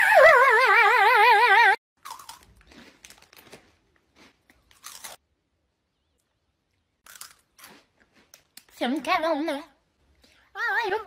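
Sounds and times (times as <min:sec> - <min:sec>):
person chewing crunchy snack: 0:02.0 - 0:05.2, 0:07.0 - 0:08.7.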